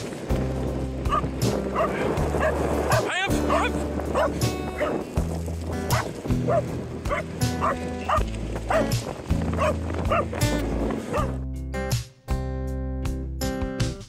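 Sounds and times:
background music with bass: 0:00.0 - 0:14.0
dog barking: 0:01.1 - 0:05.0, 0:05.9 - 0:08.9, 0:09.6 - 0:10.3, 0:11.1 - 0:11.4.

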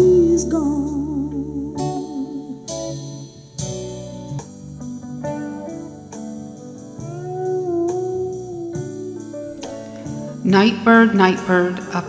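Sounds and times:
plucked guitar ballad: 0:00.0 - 0:12.0.

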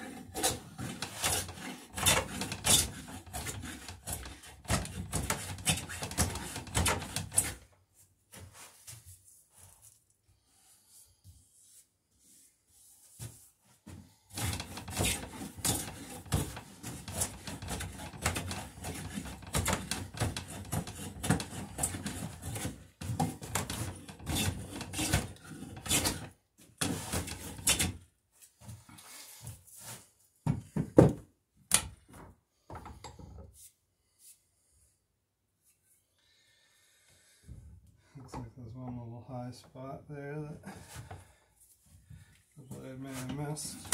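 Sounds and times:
hand plane shaving wood: 0:00.0 - 0:07.6, 0:14.3 - 0:28.0.

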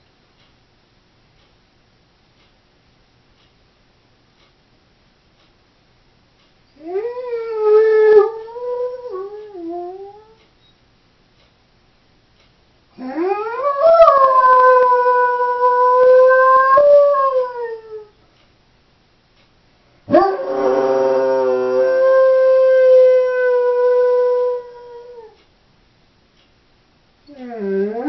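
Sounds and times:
dog howling: 0:06.8 - 0:10.4, 0:13.0 - 0:18.1, 0:20.1 - 0:25.4, 0:27.3 - 0:28.0.

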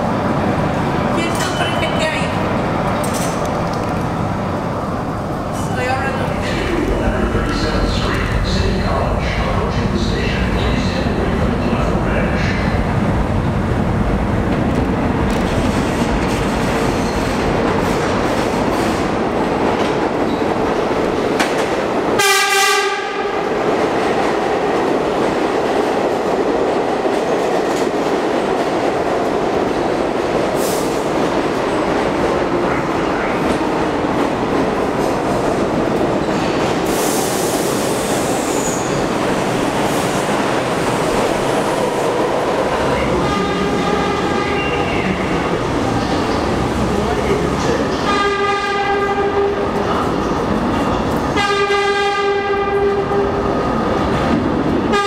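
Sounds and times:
subway train rumbling on rails: 0:00.0 - 0:55.0
train horn blast: 0:22.2 - 0:23.4, 0:43.2 - 0:44.8, 0:48.0 - 0:49.6, 0:51.4 - 0:53.4.

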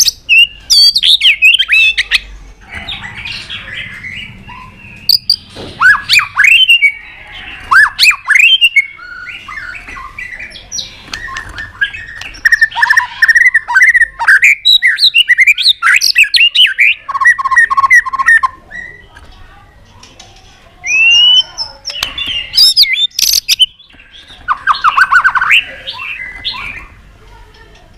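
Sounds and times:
bird singing whistled phrases: 0:04.0 - 0:07.0, 0:07.7 - 0:19.1, 0:20.8 - 0:23.8
bird clicks: 0:11.1 - 0:12.5.

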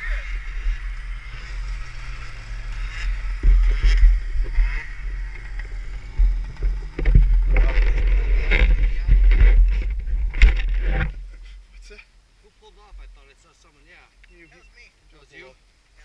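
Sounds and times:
wind buffeting microphone: 0:00.0 - 0:11.3.

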